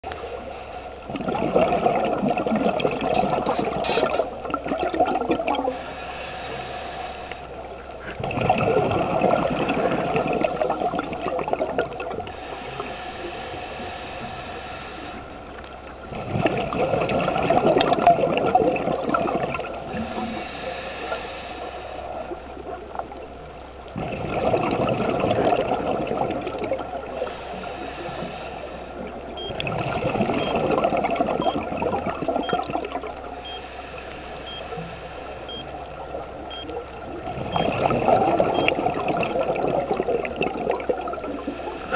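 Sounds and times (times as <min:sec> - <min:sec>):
diver exhaling bubbles through regulator: 0:01.1 - 0:05.9, 0:08.1 - 0:13.6, 0:16.0 - 0:20.7, 0:23.9 - 0:33.2, 0:37.1 - 0:41.9.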